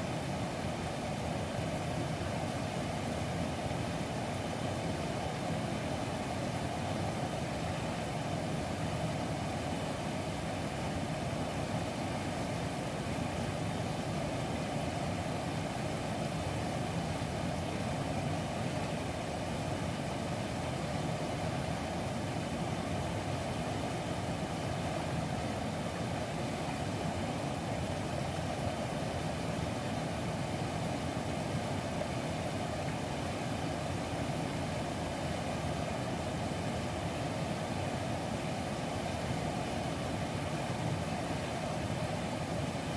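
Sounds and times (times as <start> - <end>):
river rushing over rapids: 0.0 - 42.9.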